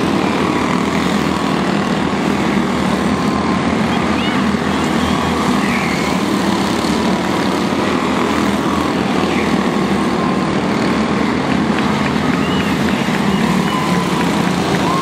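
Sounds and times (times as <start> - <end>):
race car engines droning: 0.0 - 15.0.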